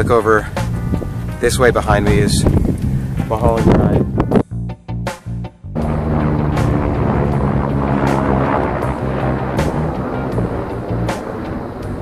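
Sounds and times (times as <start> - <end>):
band playing stopped chords: 5.8 - 11.5.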